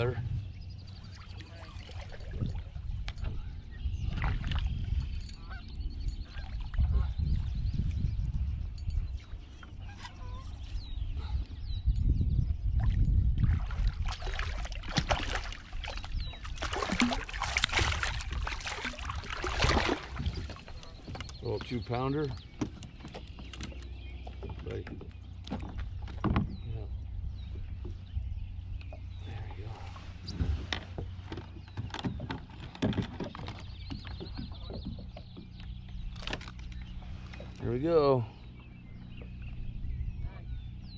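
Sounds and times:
fish flopping against plastic kayak: 13.5s - 21.7s, 22.3s - 26.6s, 30.0s - 37.6s
fish splashing in water: 13.6s - 20.8s.

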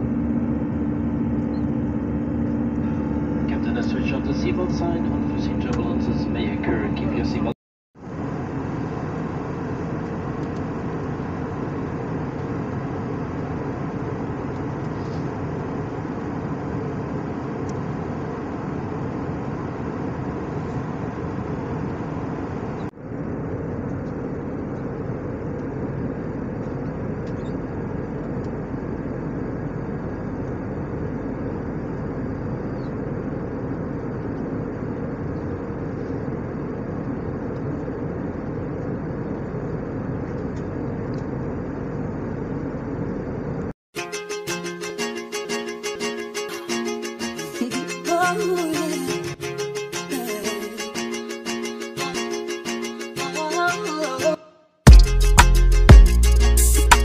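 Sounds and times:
jet engine and airflow rush: 0.0s - 43.8s.

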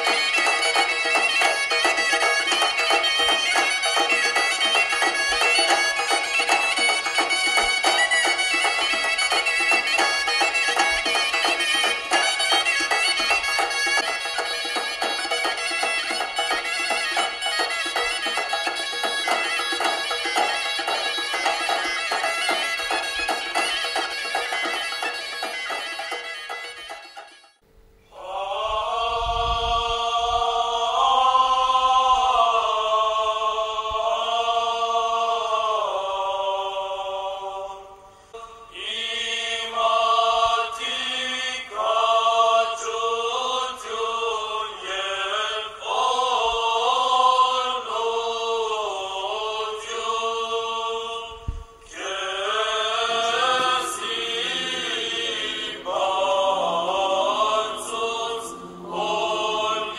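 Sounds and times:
sung chant with long notes: 28.1s - 59.9s.

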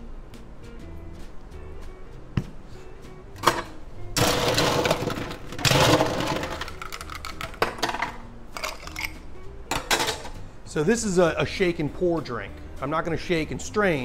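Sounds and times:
ice cubes rattling: 4.2s - 9.1s.

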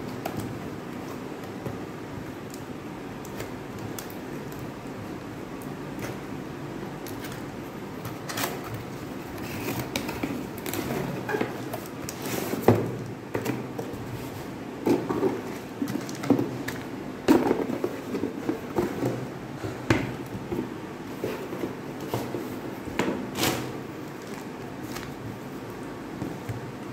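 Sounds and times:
plastic wrap crinkling: 23.5s - 25.9s.

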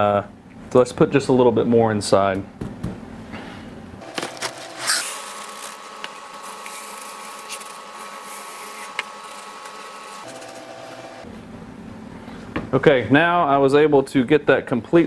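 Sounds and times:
plastic bag crinkling: 4.0s - 10.6s.

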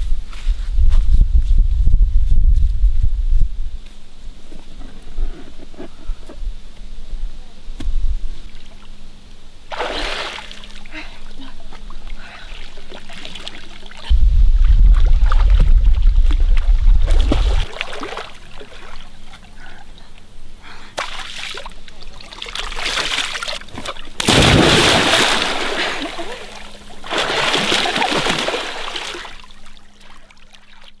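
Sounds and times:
big splash of person jumping: 9.7s - 10.6s, 17.0s - 18.2s, 23.8s - 26.4s, 27.0s - 29.4s
water splashing: 9.7s - 10.9s, 21.0s - 30.9s
heavy low rumble: 14.1s - 17.7s.

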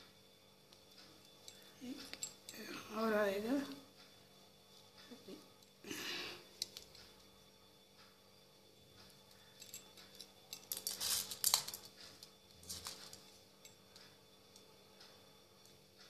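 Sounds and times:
plastic beads clinking in steel bowl: 10.5s - 11.9s, 12.6s - 13.2s.

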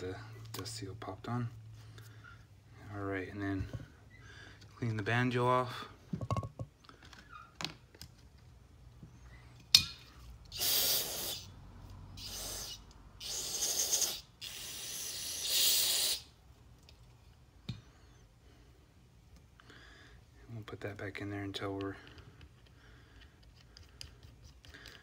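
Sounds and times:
aerosol spray bursts: 10.5s - 11.4s, 12.2s - 16.3s.

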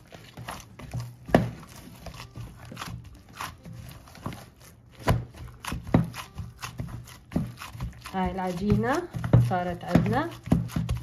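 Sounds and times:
dough kneaded by hand slapping: 0.0s - 11.0s.

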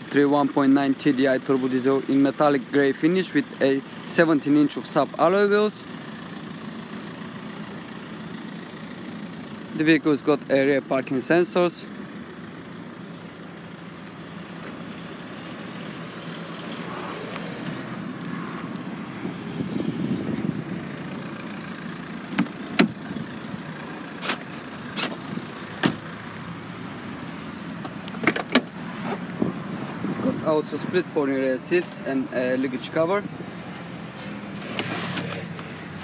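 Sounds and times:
car engine running: 0.0s - 31.6s, 34.2s - 36.0s
tailgate clicks and knocks: 22.3s - 23.0s, 25.8s - 26.1s, 27.8s - 29.2s.

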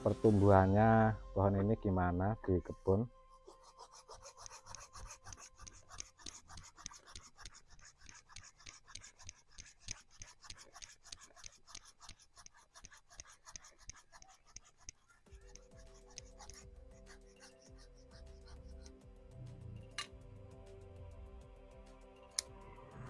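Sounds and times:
knife scraping wood: 3.3s - 19.0s.

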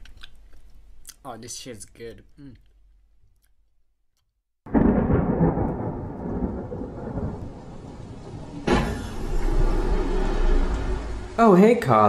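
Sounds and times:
thunder cracks and rumbling: 4.7s - 11.4s.

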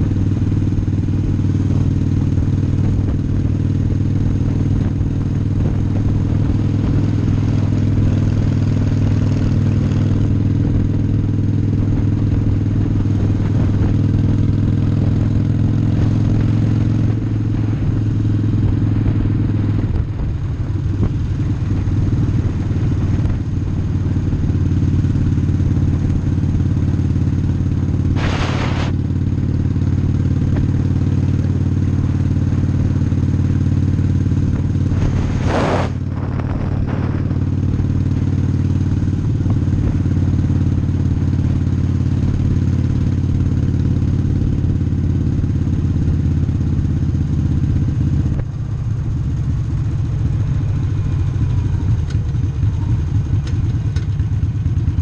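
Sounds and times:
motorcycle engine running: 0.0s - 55.0s
short loud noises: 28.2s - 28.9s.

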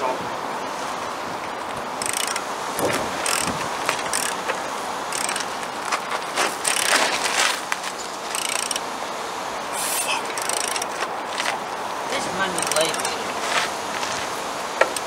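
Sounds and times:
ratchet clicking: 2.0s - 2.5s, 3.2s - 6.0s, 6.6s - 7.1s, 8.3s - 8.9s, 10.4s - 11.0s, 12.6s - 13.2s.

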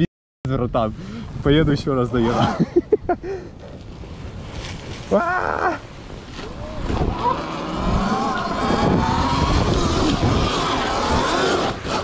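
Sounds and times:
wind buffeting microphone: 0.6s - 12.0s
electric dirt bike motor whining: 6.3s - 12.0s.

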